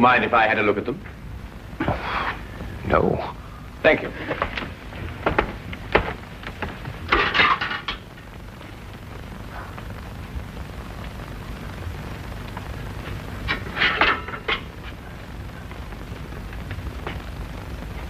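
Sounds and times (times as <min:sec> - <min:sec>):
film soundtrack hiss and hum: 0:00.0 - 0:18.0
footsteps: 0:04.2 - 0:07.6, 0:15.6 - 0:18.0.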